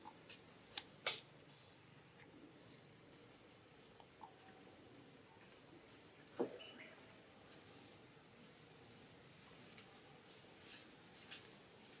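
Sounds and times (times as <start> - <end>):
faint bird chirps: 0.8 - 8.8.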